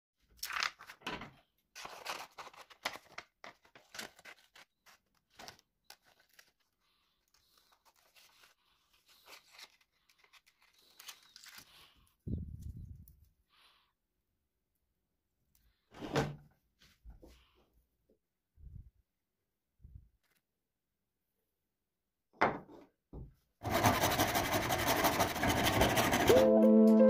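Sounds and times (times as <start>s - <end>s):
paper rustling: 0.2s - 12.8s.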